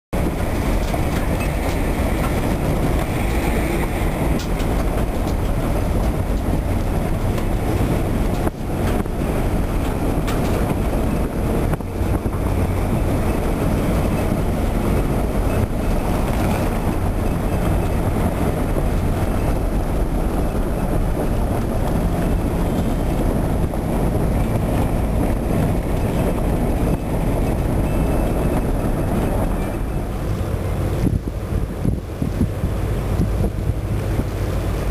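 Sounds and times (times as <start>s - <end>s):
vehicle engine and road noise: 0.1s - 34.9s.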